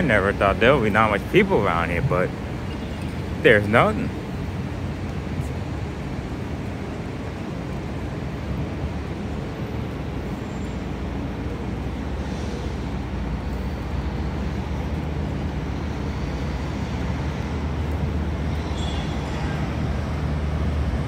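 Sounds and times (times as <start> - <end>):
traffic engines rumbling: 0.0 - 21.0.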